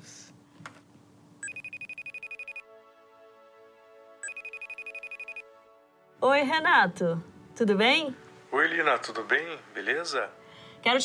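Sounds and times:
smartphone ringing electronic trill: 1.4s - 2.6s, 4.2s - 5.4s
soft steady tones: 1.4s - 2.6s, 4.2s - 5.4s.

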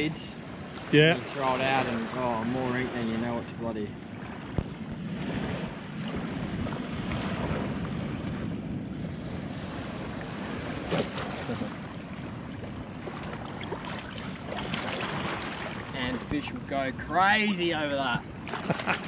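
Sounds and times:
shallow water lapping: 0.0s - 19.0s
wind buffeting microphone: 0.0s - 19.0s.

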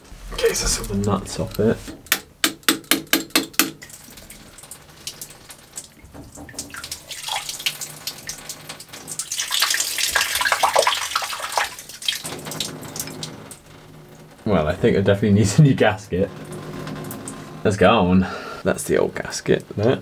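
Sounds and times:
water dribbling and splashing: 3.2s - 15.2s.

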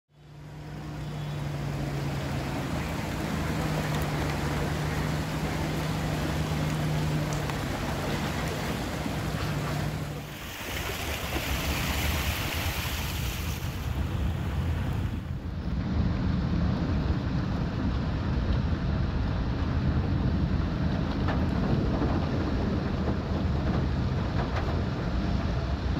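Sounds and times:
diesel truck engine hum: 0.1s - 10.6s
water washing: 0.3s - 15.3s.

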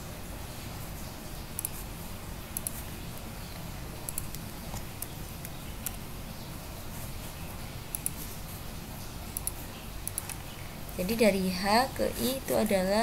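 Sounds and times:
steady background hiss: 0.0s - 13.0s
mouse and keyboard clicks: 2.6s - 2.8s, 4.1s - 6.0s, 9.4s - 10.4s.

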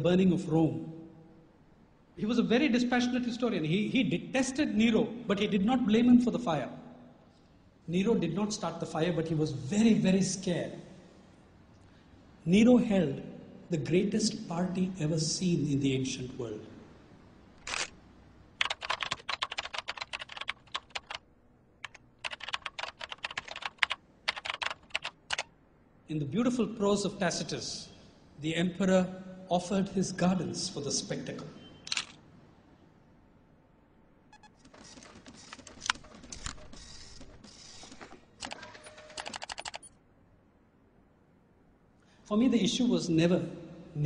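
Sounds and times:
fast typing on keyboard: 18.6s - 21.2s, 21.8s - 25.5s, 34.6s - 39.9s.

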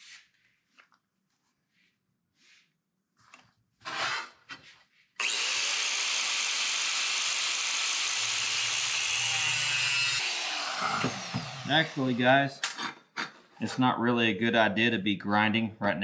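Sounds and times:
angle grinder cutting steel: 5.2s - 12.6s.

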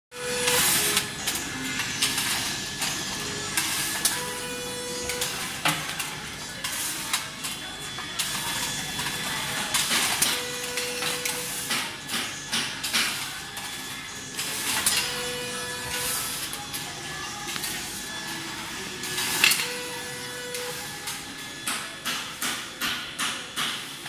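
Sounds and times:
seam welder hiss and tone: 0.2s - 5.8s, 8.3s - 16.7s.

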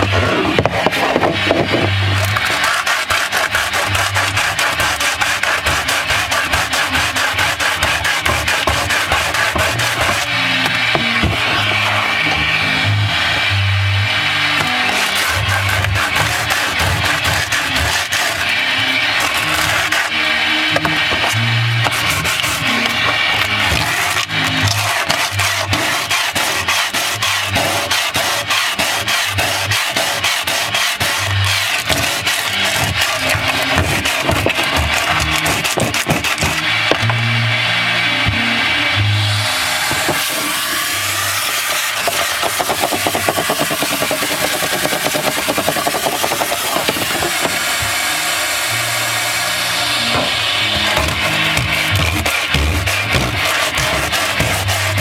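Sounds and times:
nozzle scraping against hull: 0.0s - 12.5s, 14.6s - 37.2s, 39.8s - 48.0s, 50.0s - 55.0s
sandpaper rubbing on wood: 0.0s - 12.5s, 14.6s - 37.0s, 39.7s - 47.8s, 50.6s - 55.0s
shop vacuum running: 0.0s - 55.0s
background music: 3.6s - 26.2s, 30.7s - 42.0s, 46.2s - 55.0s.

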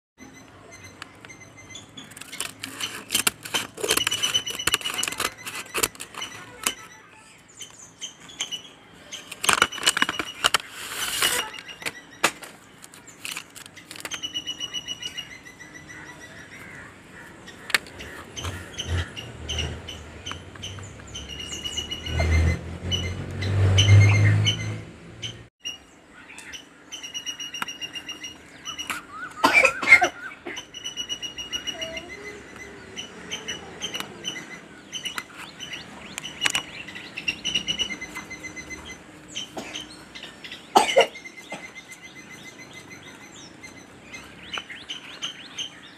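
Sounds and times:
paper mailer crinkling: 2.0s - 6.8s, 9.2s - 14.2s
knife scraping box tape: 2.1s - 6.8s, 9.2s - 14.2s
scissors cutting paper: 2.1s - 6.9s, 9.2s - 11.9s.

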